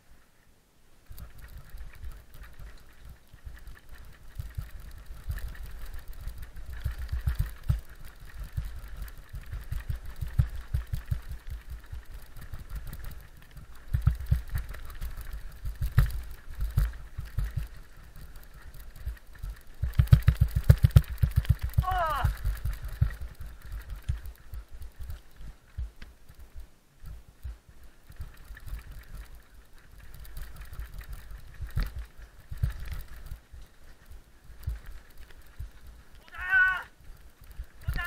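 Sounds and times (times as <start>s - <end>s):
bike thudding and rattling down steps: 1.0s - 38.0s.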